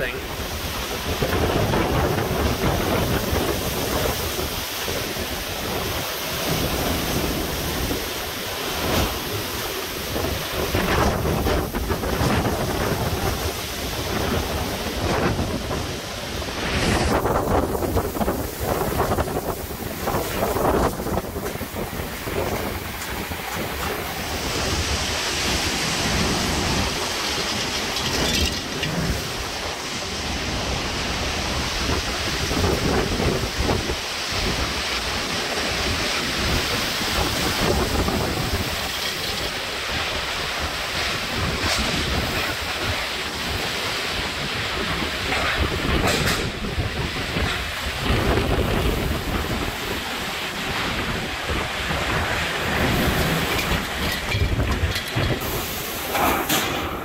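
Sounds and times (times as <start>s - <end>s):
gusty wind buffeting microphone: 0.0s - 57.0s
rain hissing: 0.0s - 57.0s.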